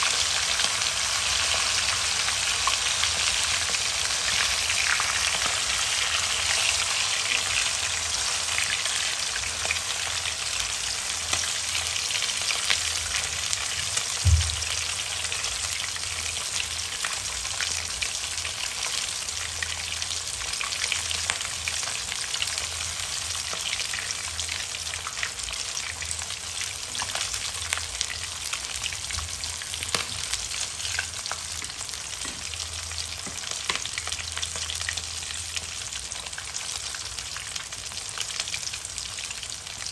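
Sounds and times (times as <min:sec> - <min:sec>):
oil sizzling with fish frying: 0:00.0 - 0:39.9
low thump: 0:14.2 - 0:14.8.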